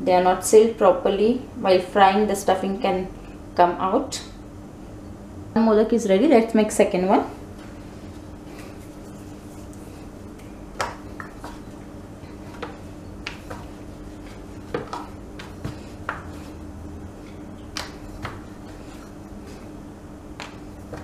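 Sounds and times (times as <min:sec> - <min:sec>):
rolling pin rolling dough: 0:10.7 - 0:19.6.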